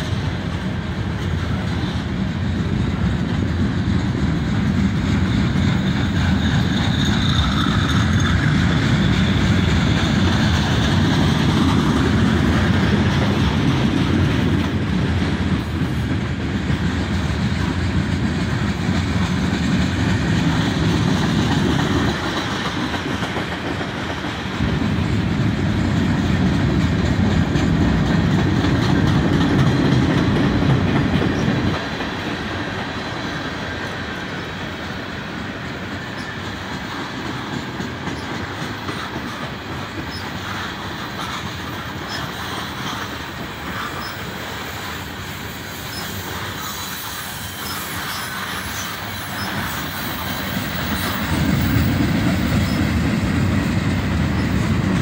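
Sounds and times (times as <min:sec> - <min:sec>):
steel wheels on rails: 0:00.0 - 0:55.0.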